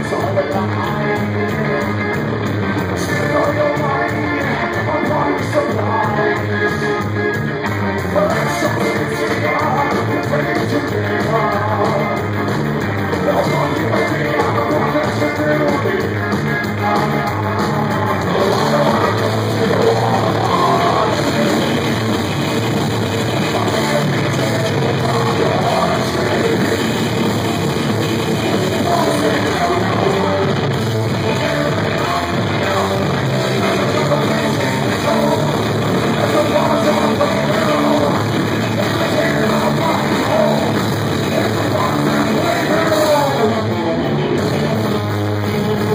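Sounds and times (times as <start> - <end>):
drums: 0.0 - 45.9
electric bass: 0.0 - 45.9
keyboard: 0.0 - 45.9
person singing: 0.0 - 45.9.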